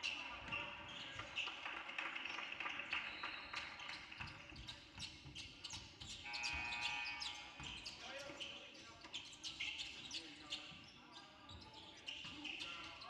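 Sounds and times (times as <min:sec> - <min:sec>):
basketball bouncing on court: 0:00.4 - 0:06.7, 0:07.6 - 0:08.0
shoe squeaks and knocks: 0:03.0 - 0:13.0.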